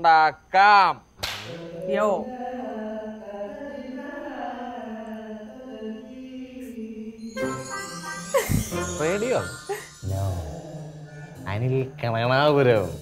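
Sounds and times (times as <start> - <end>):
man singing long notes: 7.2 - 12.4.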